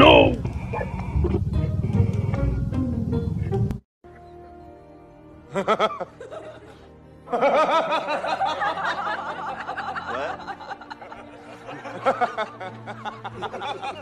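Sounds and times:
quiet background music: 0.0s - 14.0s
man laughing: 5.5s - 14.0s.

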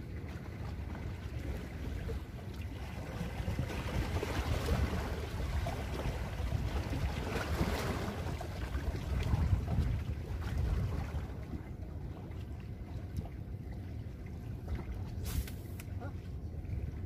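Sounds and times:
wind buffeting microphone: 3.0s - 12.0s.

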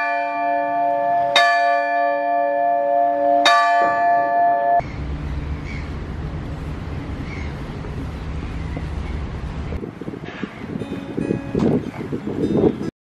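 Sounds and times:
tower bell ringing: 0.0s - 4.9s, 10.8s - 11.7s
low outdoor noise: 0.0s - 12.9s.

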